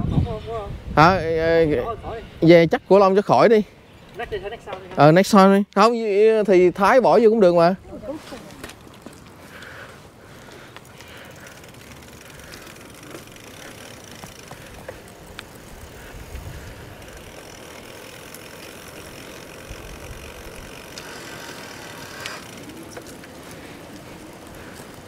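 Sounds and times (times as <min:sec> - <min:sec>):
wind rumble on microphone: 0:00.0 - 0:02.4, 0:15.7 - 0:17.1
bicycle tyre rolling noise: 0:00.0 - 0:25.0.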